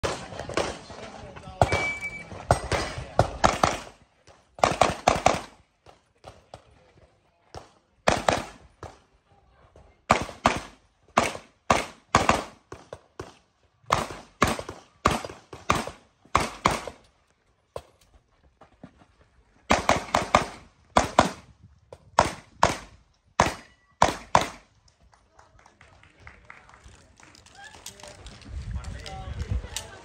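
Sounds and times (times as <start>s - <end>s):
pistol shots: 1.6s - 4.0s, 4.6s - 5.6s, 8.0s - 8.9s, 10.1s - 17.0s, 22.2s - 24.6s.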